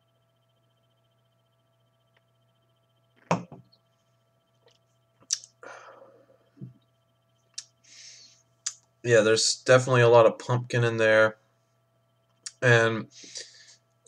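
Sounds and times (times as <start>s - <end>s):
lip smacks: 5.2s - 5.5s
tongue clicks: 5.2s - 5.6s
soft breath: 7.8s - 8.5s.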